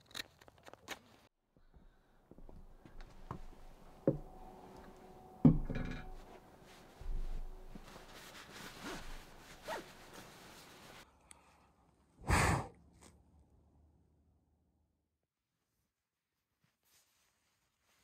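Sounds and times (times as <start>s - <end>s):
bedding rustling: 6.0s - 11.0s
breath blowing out candle: 12.2s - 12.8s.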